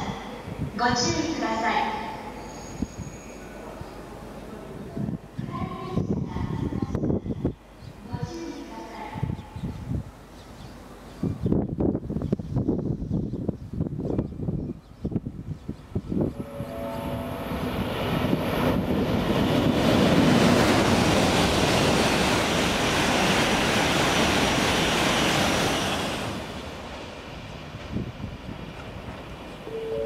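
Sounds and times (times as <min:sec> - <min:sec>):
train rushing past: 0:16.2 - 0:30.0.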